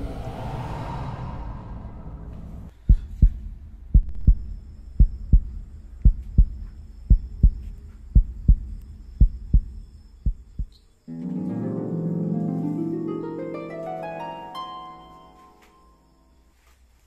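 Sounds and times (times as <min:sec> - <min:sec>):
heartbeat thumps: 0:02.7 - 0:10.8.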